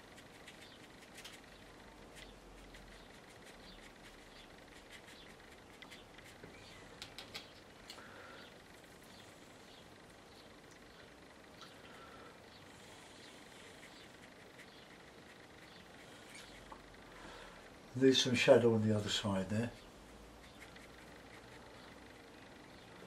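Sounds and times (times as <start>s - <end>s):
brush dabbing paint on paper: 0.0s - 6.5s, 13.5s - 16.8s, 19.7s - 22.4s.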